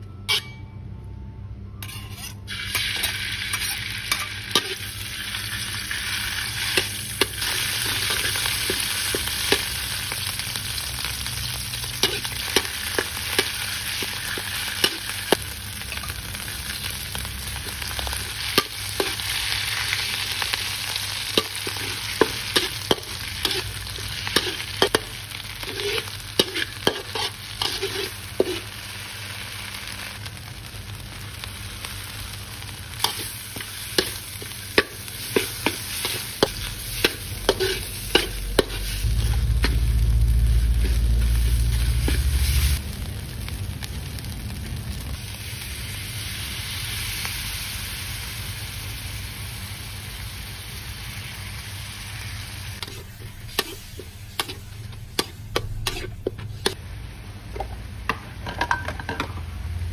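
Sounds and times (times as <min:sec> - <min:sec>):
metal spatula scraping wok: 0:00.3 - 0:00.7, 0:01.8 - 0:10.5, 0:11.1 - 0:16.1, 0:17.6 - 0:28.9, 0:33.0 - 0:42.8, 0:52.8 - 0:56.8
oil sizzling in a wok: 0:01.8 - 0:59.9.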